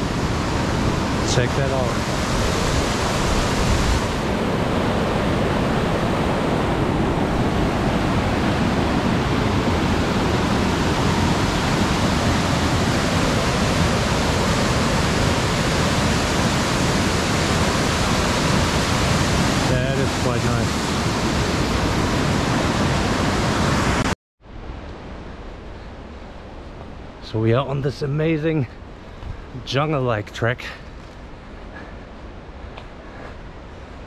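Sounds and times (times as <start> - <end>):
stream rushing: 0.0 - 30.2.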